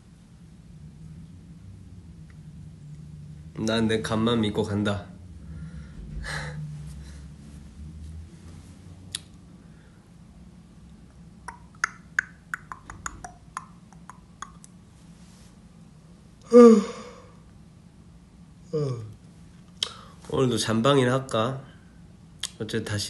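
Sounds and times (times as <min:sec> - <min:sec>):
faint low hum: 0:00.0 - 0:23.0
tongue clicks and mouth pops: 0:09.1 - 0:09.4, 0:11.4 - 0:14.8, 0:22.4 - 0:22.6.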